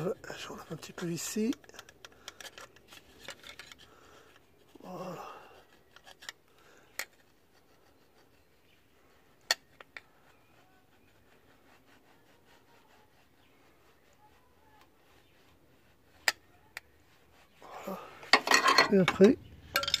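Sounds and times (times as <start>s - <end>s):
screwdriver scraping metal: 0.6s - 3.9s, 5.9s - 6.4s.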